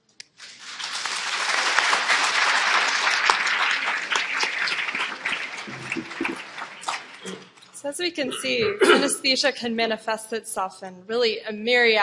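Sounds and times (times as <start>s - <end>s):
audience applauding: 0.5s - 7.6s.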